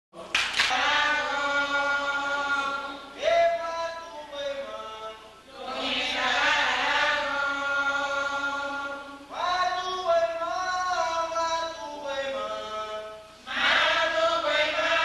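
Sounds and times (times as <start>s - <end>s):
voices singing a chant: 0.2s - 15.0s
man singing into a microphone: 1.0s - 5.3s, 7.0s - 13.3s.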